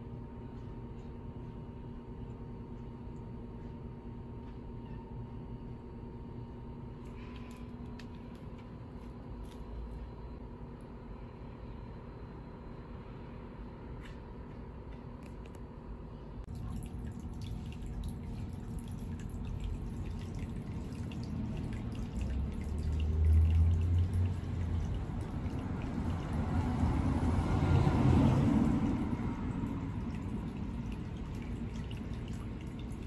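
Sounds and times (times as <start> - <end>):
low hum: 15.1 - 33.0
water dripping and trickling: 16.5 - 33.0.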